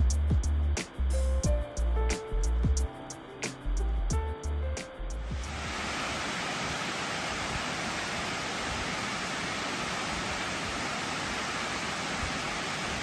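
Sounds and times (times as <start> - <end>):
water pouring over dam spillway: 5.4 - 13.0.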